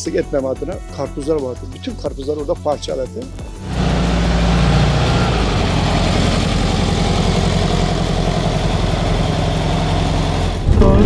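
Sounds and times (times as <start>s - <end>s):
car engine running at low speed: 3.5s - 11.0s.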